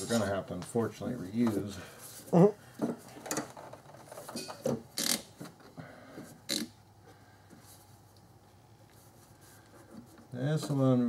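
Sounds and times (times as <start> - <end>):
hands working hoses and clamps: 2.8 - 6.8.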